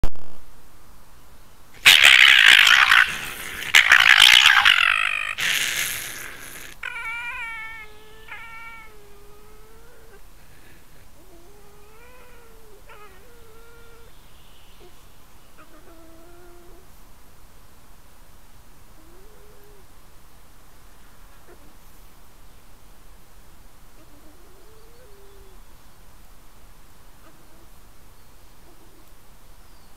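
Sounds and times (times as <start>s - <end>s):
rough snarl: 1.8s - 7.3s
high whining calls: 1.8s - 8.9s
animals screaming harshly: 1.8s - 10.2s.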